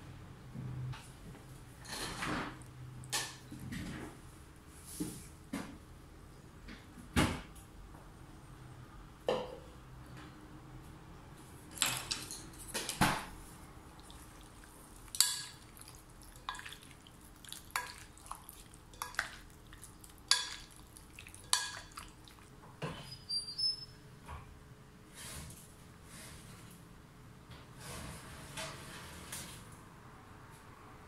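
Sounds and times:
wooden spoon clinking glass bowl: 15.1s - 22.2s.

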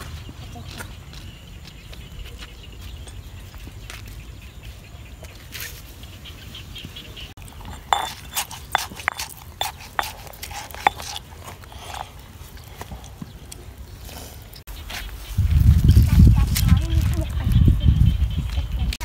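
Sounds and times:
hands squeezing lime clicks: 7.4s - 13.2s.

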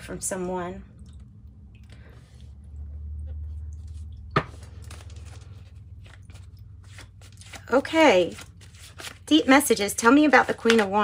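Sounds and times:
low steady hum: 0.0s - 11.0s
faint card rustling: 3.4s - 9.3s.

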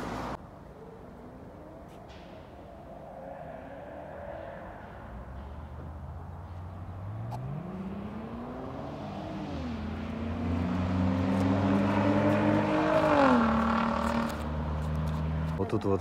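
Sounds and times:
vehicle engine revving: 4.4s - 15.6s.

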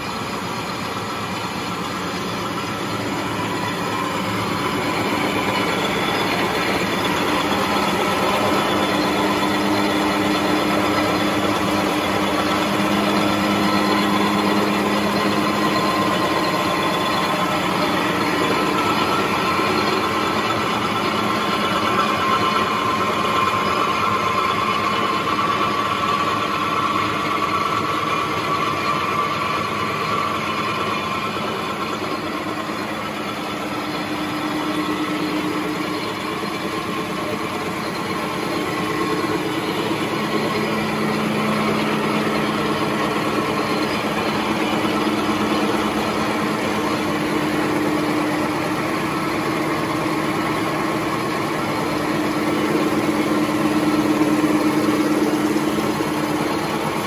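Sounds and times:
machine whirring and humming: 0.0s - 57.0s.

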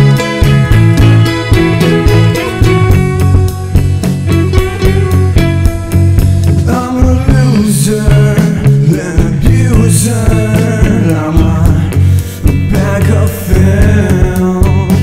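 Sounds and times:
rock band playing: 0.0s - 15.0s
person singing: 6.6s - 15.0s.

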